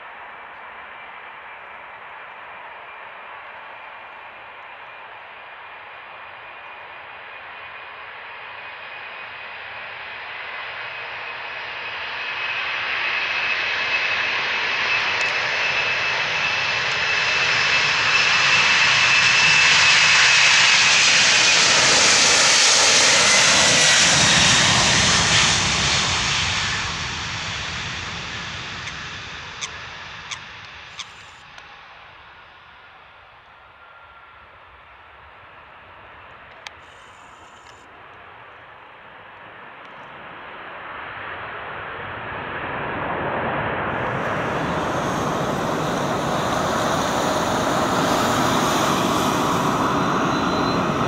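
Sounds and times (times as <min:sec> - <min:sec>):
jet engines at take-off: 0:00.0 - 0:51.0
high fan whine: 0:43.9 - 0:51.0.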